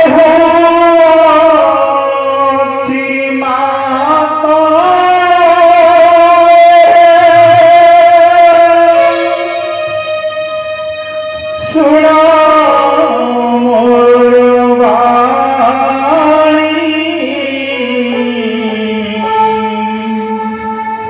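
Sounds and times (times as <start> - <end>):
held melody notes bending in pitch: 16.2 - 21.0
steady low drone: 16.6 - 21.0.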